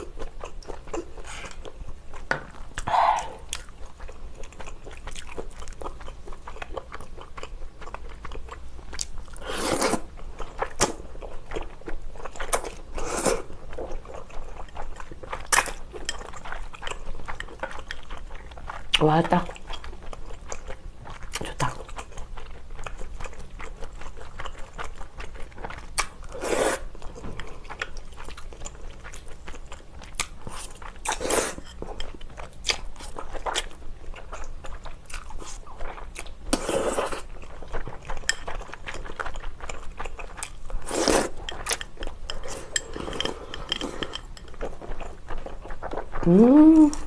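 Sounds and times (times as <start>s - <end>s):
chewing and crunching noodles: 0.0s - 47.0s.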